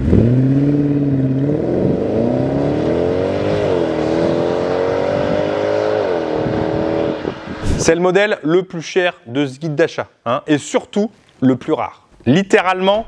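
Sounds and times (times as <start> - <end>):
car engine accelerating hard: 0.0 - 7.8.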